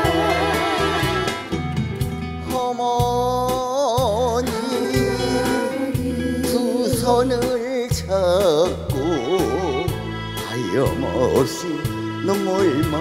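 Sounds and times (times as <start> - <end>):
band accompaniment: 0.0 - 13.0
woman singing ballad: 4.4 - 7.8.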